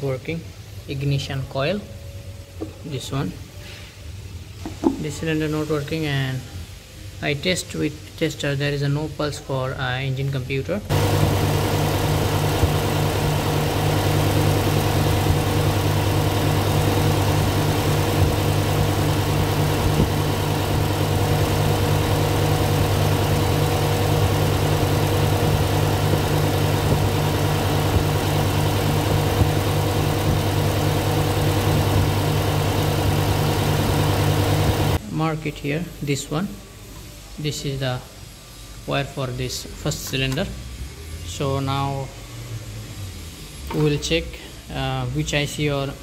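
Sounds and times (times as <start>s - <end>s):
car engine idling roughly: 10.9s - 35.0s.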